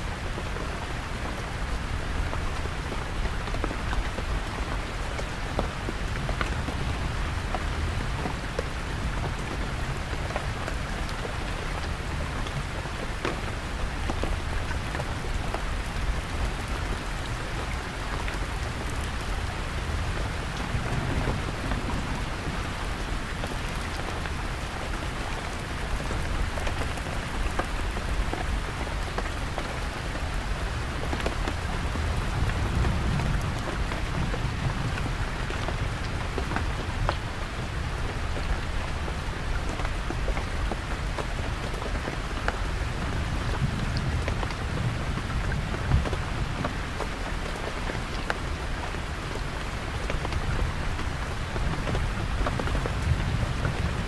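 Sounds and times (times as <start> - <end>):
heavy rain on a tent: 0.0 - 54.0
distant thunder rumble: 20.1 - 23.6.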